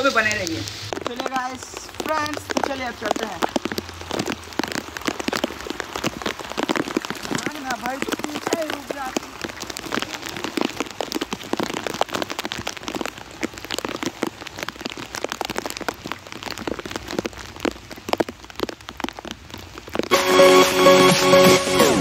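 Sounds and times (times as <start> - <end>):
heavy rain falling: 0.0 - 22.0
electronic music: 20.1 - 22.0.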